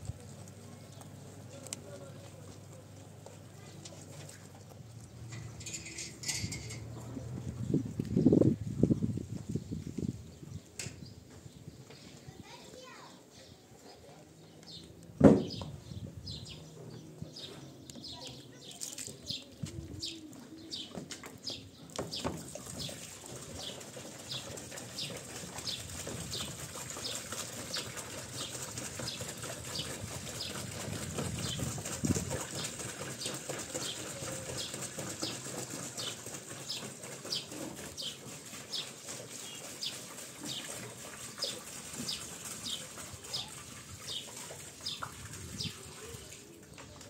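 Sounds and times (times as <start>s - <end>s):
water pouring into tub: 22.4s - 46.8s.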